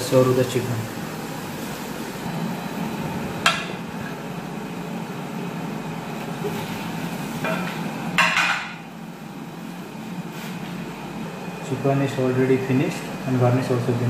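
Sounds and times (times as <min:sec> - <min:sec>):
kitchen ventilation hum: 0:00.0 - 0:14.0.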